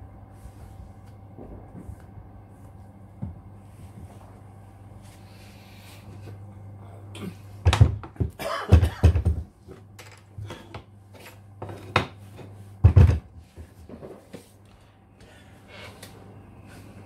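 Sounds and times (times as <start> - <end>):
steady low hum: 0.0 - 17.0
knocks and thuds on wood: 7.6 - 9.5, 12.8 - 13.3.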